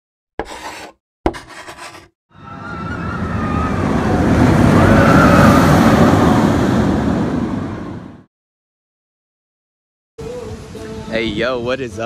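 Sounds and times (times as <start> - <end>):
rushing rumble: 2.5 - 8.3.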